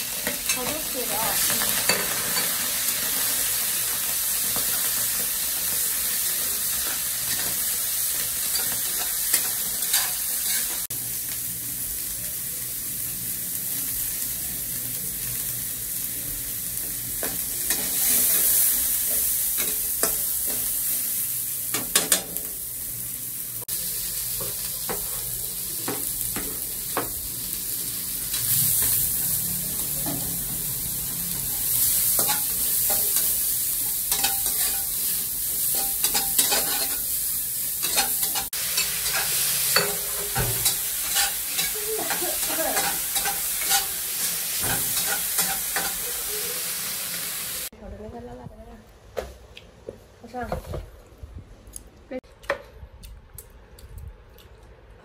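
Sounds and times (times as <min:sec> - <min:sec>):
food sizzling in a wok: 0:00.0 - 0:47.8
metal spatula scraping pan: 0:35.7 - 0:37.1, 0:37.8 - 0:46.0.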